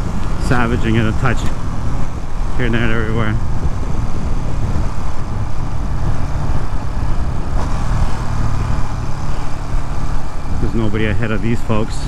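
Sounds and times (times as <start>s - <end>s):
motorcycle engine droning: 0.0s - 12.0s
road noise: 0.0s - 12.0s.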